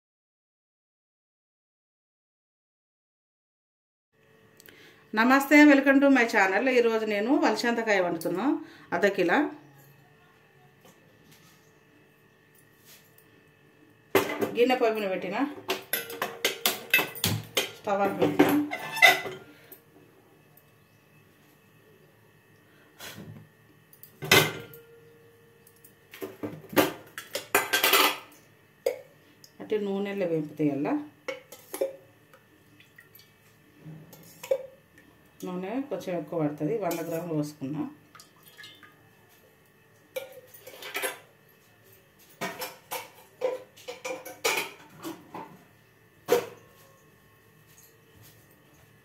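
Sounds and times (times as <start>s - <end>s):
utensils and dishes clinking: 15.6s - 19.8s, 26.8s - 29.0s, 40.1s - 45.5s
metal cookware clanking: 15.7s - 19.5s.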